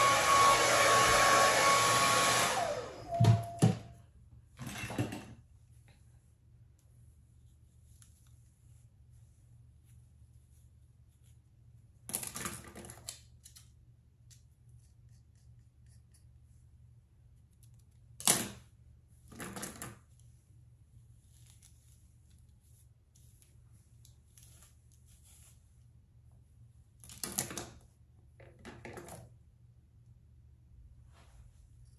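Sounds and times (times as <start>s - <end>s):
comb rasping through hair: 0.0s - 3.2s, 20.1s - 25.9s.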